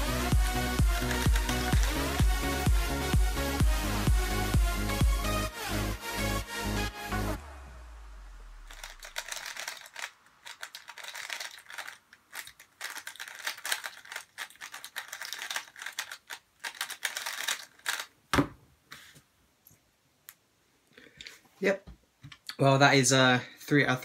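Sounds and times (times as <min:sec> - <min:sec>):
plastic cube clicking: 0:08.7 - 0:18.1.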